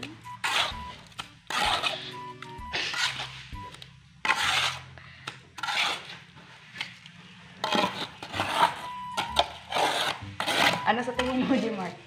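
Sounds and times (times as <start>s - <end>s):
trowel scraping wet mortar: 0.4s - 0.9s, 1.5s - 2.2s, 2.8s - 3.5s, 4.2s - 4.9s, 5.6s - 6.2s, 7.6s - 11.6s.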